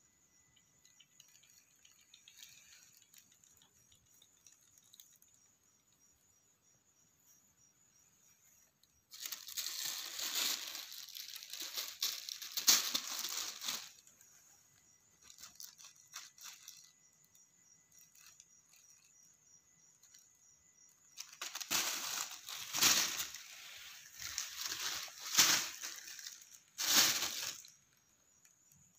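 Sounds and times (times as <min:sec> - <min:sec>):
plastic bag crinkling: 0:00.9 - 0:05.3, 0:09.1 - 0:14.2, 0:15.2 - 0:17.0, 0:21.2 - 0:27.9.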